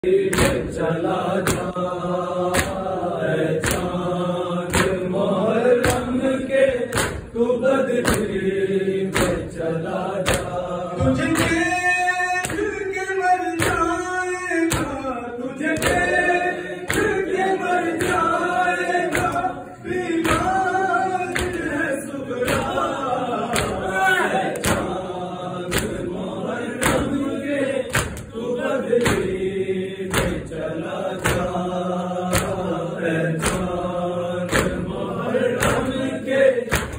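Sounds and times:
men chanting a lament: 0.0s - 36.9s
palms slapping chests: 4.7s - 5.1s, 6.9s - 7.4s, 24.5s - 25.0s, 36.7s - 36.9s.

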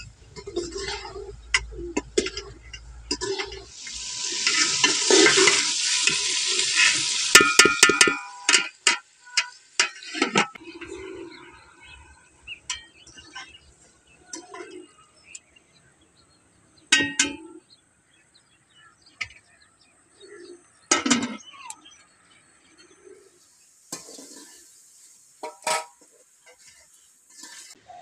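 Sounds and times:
bird calls: 10.6s - 28.0s.

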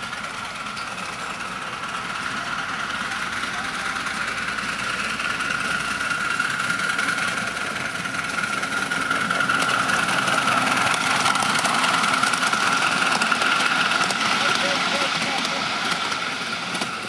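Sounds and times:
miniature steam locomotive: 0.0s - 17.0s.

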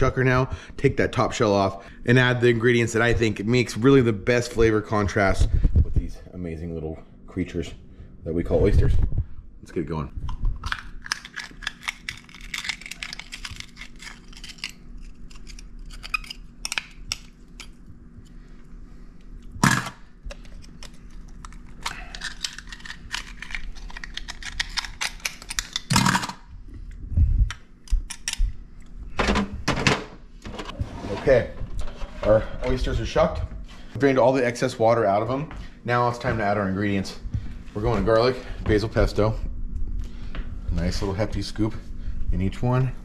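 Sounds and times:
oyster shells clicking and scraping: 10.6s - 17.8s, 19.6s - 26.4s.

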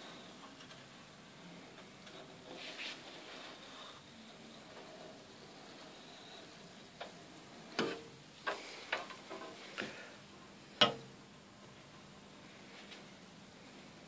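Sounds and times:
sharp clicks and knocks: 7.0s - 9.9s, 10.8s - 11.2s.

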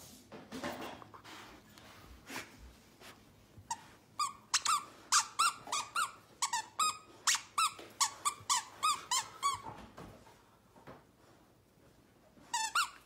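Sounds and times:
dog toy squeaking: 3.7s - 9.7s, 12.5s - 13.0s.

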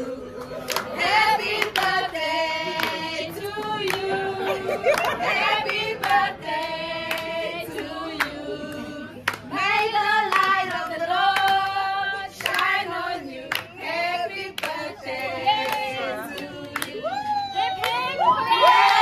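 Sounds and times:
group singing in chorus: 0.0s - 17.2s
hand claps: 0.7s - 2.0s, 9.2s - 9.6s, 10.2s - 11.8s, 12.4s - 12.8s, 13.4s - 13.8s, 14.6s - 14.8s, 15.6s - 17.0s.

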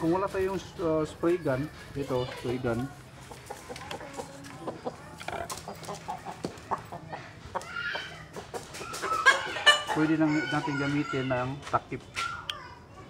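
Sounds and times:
chickens clucking: 0.0s - 12.9s.

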